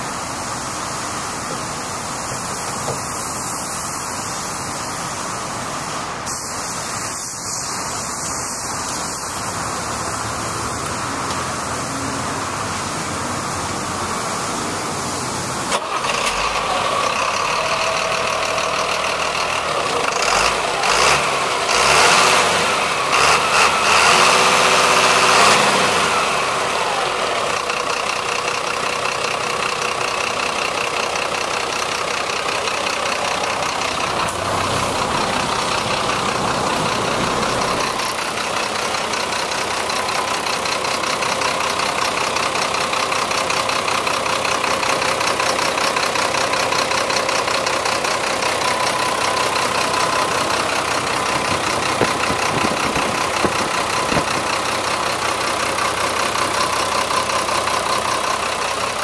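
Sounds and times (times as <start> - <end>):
steady hiss: 0.0 - 15.7
diesel engine starting and revving: 0.0 - 59.0.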